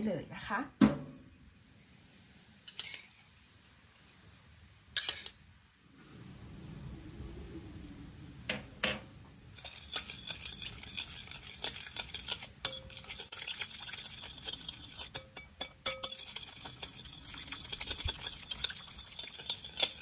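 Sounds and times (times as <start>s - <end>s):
spoon stirring in glass bowl: 2.7s - 3.2s, 5.0s - 5.4s, 9.6s - 20.0s
soft low rush: 5.8s - 9.5s.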